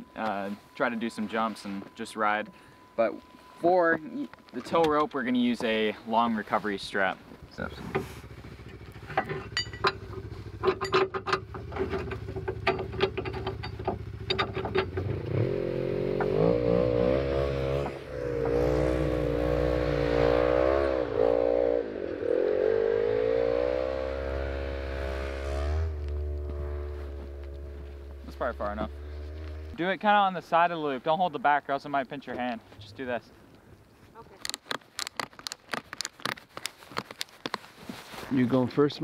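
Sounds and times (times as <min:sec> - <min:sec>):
metal clinking: 0:08.7 - 0:15.2
car engine revving: 0:14.9 - 0:29.8.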